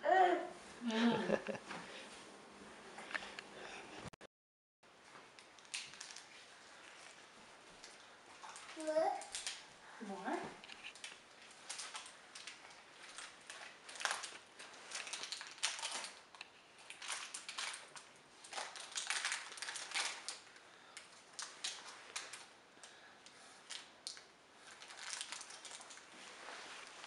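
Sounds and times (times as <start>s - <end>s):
fabric crinkling and rustling: 10.3s - 22.5s, 24.5s - 27.0s.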